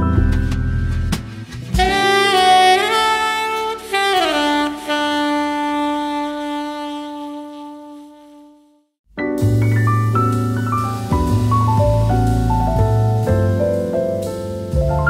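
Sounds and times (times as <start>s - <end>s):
jazz saxophone melody: 1.8s - 15.0s.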